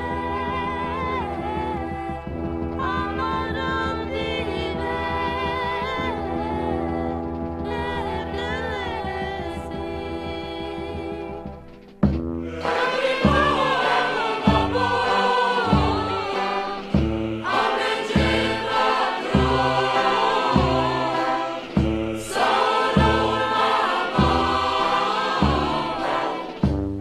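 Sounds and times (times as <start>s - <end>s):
low bass notes: 0.0s - 17.6s, 18.2s - 24.8s
choir singing slow song: 12.4s - 27.0s.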